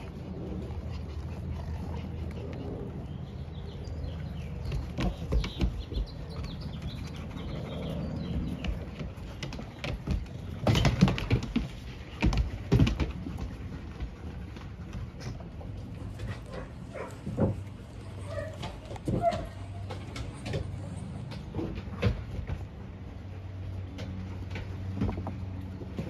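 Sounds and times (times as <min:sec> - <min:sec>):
small birds chirping: 0:00.0 - 0:12.4
dogs scuffling on wooden deck: 0:00.0 - 0:26.0.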